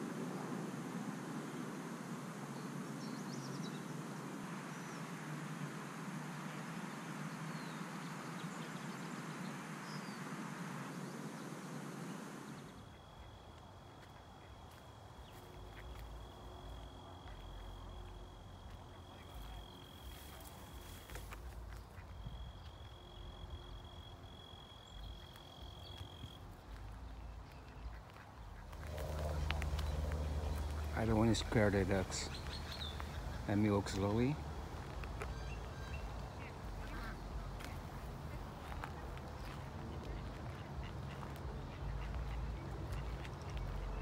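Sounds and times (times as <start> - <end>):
footsteps on dirt trail: 12.8 - 44.0.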